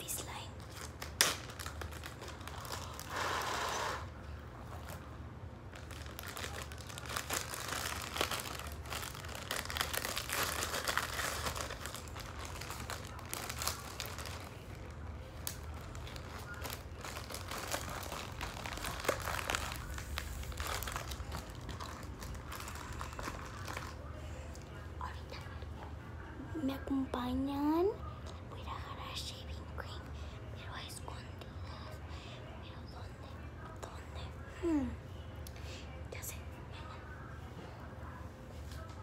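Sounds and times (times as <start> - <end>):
plastic bag crinkling: 0.6 - 4.1, 5.6 - 24.2.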